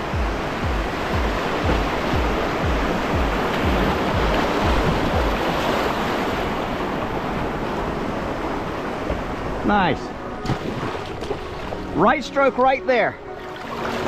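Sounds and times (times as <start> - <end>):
low thumps of boat on waves: 0.0 - 9.7
whitewater rushing: 0.0 - 14.0.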